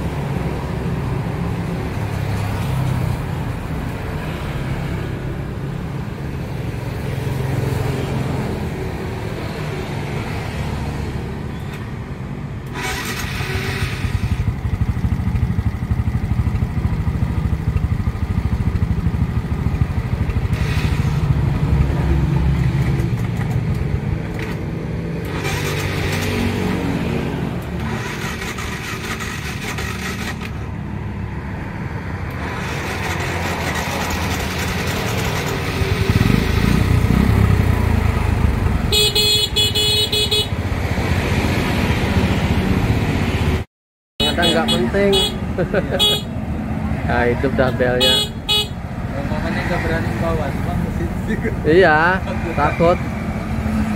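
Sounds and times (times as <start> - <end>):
motorcycle horn: 38.9 - 40.6, 44.2 - 46.4, 48.0 - 48.8.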